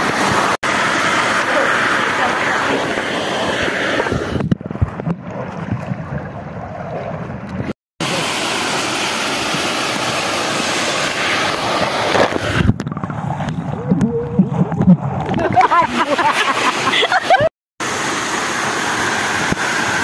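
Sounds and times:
waterfall rushing: 0.0 - 4.3, 8.0 - 12.7, 15.6 - 20.0
muffled underwater knocks and sloshes: 4.4 - 7.7.

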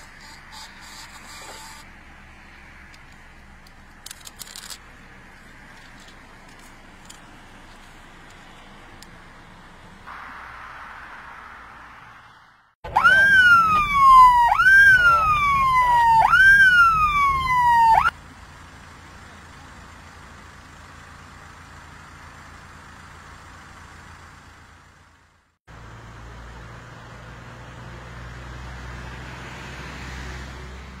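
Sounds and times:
police siren: 12.8 - 18.2.

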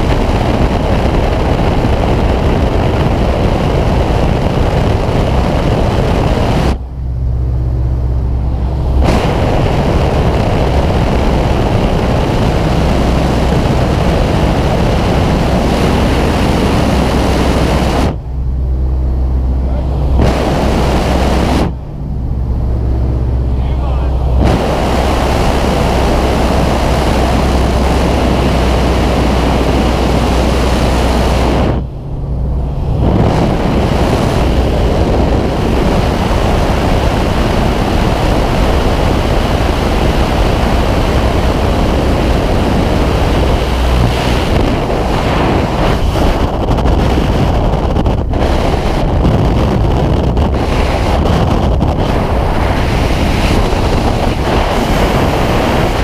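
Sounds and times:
aircraft engine droning: 0.0 - 56.0
wind buffeting microphone: 0.0 - 56.0.

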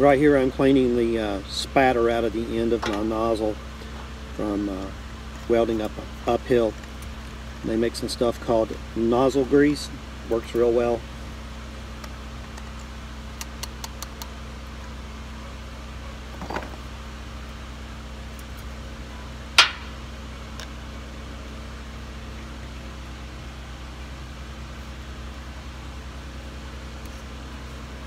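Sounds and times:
low machine hum: 0.0 - 28.0
sharp tap: 19.6 - 20.0.

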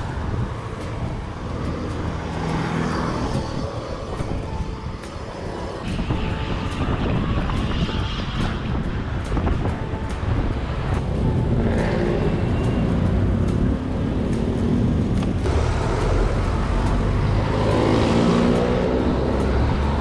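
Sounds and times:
car engines in slow traffic: 10.9 - 20.0.

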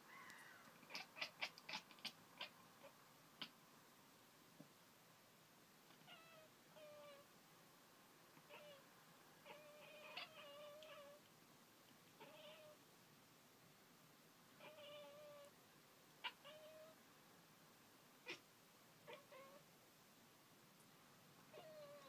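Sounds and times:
cat chattering: 0.8 - 3.5, 8.5 - 8.8, 9.4 - 11.2, 12.2 - 12.8, 18.2 - 18.4, 19.0 - 19.6, 21.5 - 22.0.

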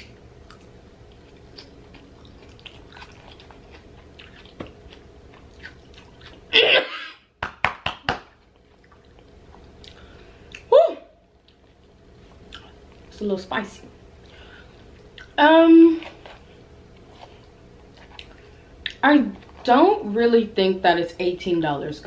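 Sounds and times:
person chewing food: 0.0 - 6.5, 8.3 - 10.7, 11.4 - 13.1, 14.2 - 15.4, 16.0 - 19.6.

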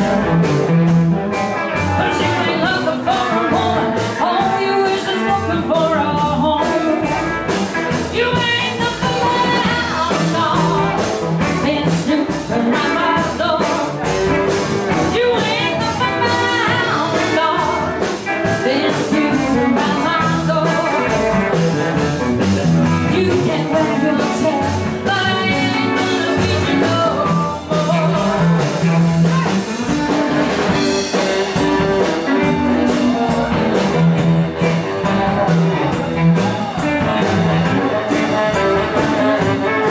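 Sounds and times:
live rock and roll band: 0.0 - 39.9
woman singing: 1.9 - 7.4, 8.0 - 14.0, 14.9 - 21.4, 23.0 - 29.5
saxophone: 12.4 - 39.9.

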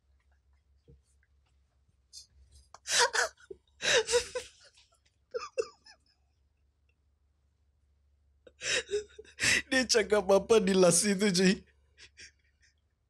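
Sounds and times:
man laughing: 3.9 - 4.5, 5.4 - 5.9.

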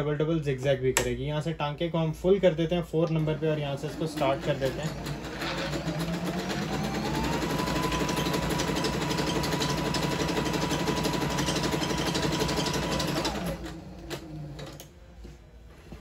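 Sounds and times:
sewing machine running: 3.2 - 14.9.

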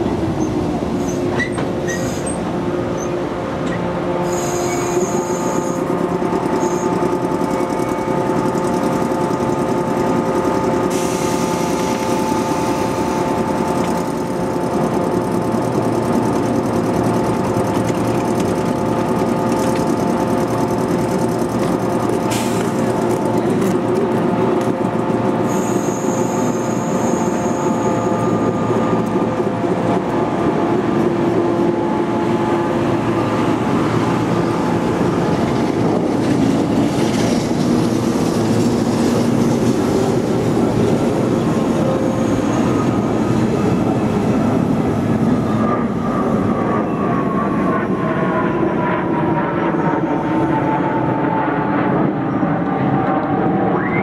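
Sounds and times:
train wheels and motor noise: 0.0 - 54.0
high thin squeal: 0.4 - 2.4, 4.2 - 7.2, 25.4 - 28.8.

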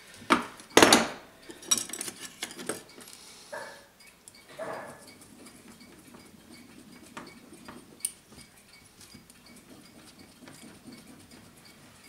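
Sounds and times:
metal broach scraping and clicking: 4.0 - 12.0.

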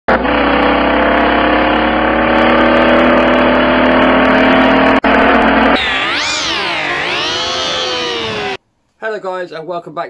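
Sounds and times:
car engine running: 5.8 - 8.6.

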